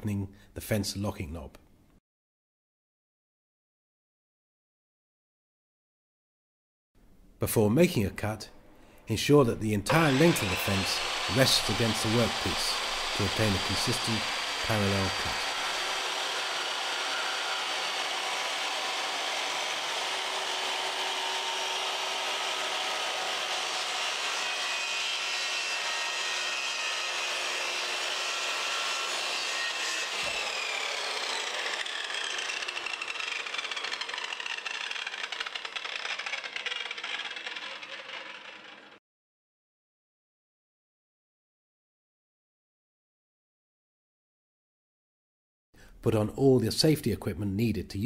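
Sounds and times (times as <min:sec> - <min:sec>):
circular saw cutting wood: 0:09.9 - 0:39.0.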